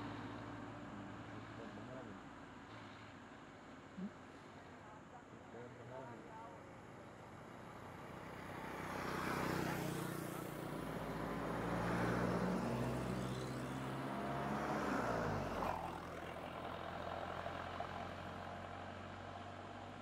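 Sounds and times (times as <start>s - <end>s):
low engine hum: 0.0s - 4.7s, 5.5s - 20.0s
van passing by: 7.1s - 20.0s.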